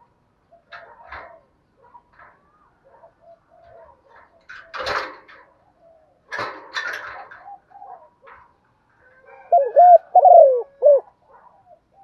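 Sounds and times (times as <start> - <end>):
dove cooing: 2.8 - 5.0, 7.1 - 8.4, 9.2 - 12.0.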